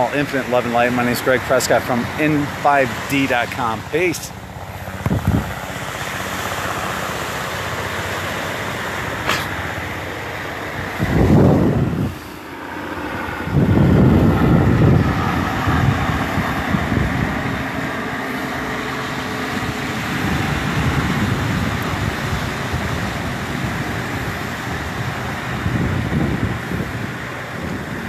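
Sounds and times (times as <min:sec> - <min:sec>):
surf breaking on beach: 0:00.0 - 0:04.4
wind buffeting microphone: 0:00.0 - 0:12.4, 0:13.0 - 0:28.0.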